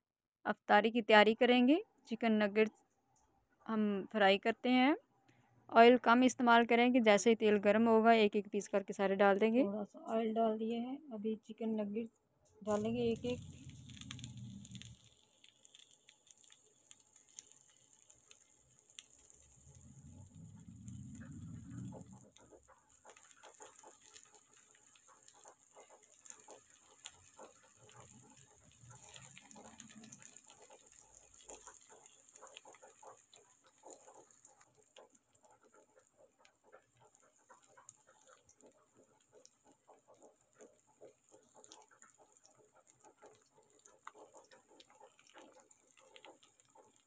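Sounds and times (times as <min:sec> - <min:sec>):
food frying in oil: 0:12.7 - 0:47.0.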